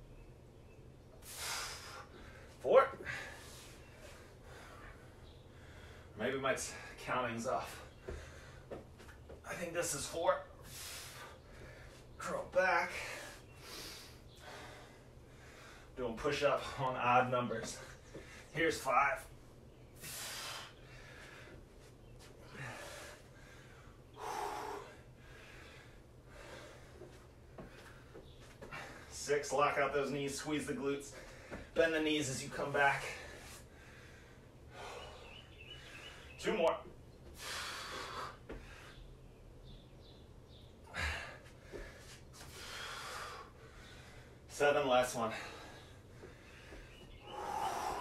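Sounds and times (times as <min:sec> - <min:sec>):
man breathing hard: 0:01.2 - 0:07.0, 0:07.7 - 0:09.1, 0:10.6 - 0:12.2, 0:12.9 - 0:16.0, 0:17.7 - 0:18.5, 0:19.9 - 0:29.2, 0:31.0 - 0:31.8, 0:33.0 - 0:36.4, 0:37.2 - 0:39.2, 0:40.8 - 0:44.5, 0:45.2 - 0:48.0.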